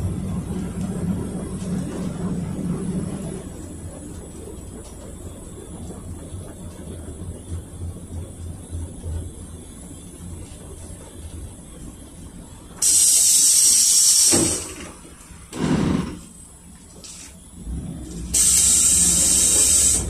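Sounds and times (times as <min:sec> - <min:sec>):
low engine rumble: 0:00.0 - 0:20.0
compressed air hisses: 0:12.8 - 0:14.7, 0:18.4 - 0:20.0
thump: 0:15.5 - 0:16.2.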